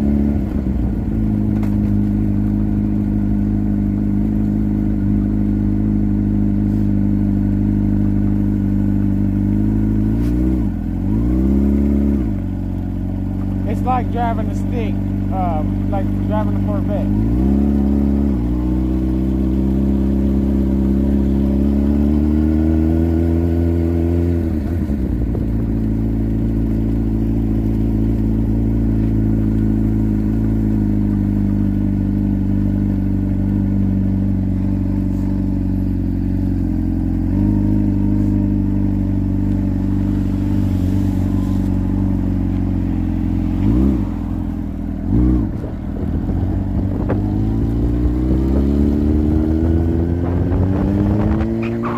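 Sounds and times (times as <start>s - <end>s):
motorcycle engine running: 0.0s - 51.9s.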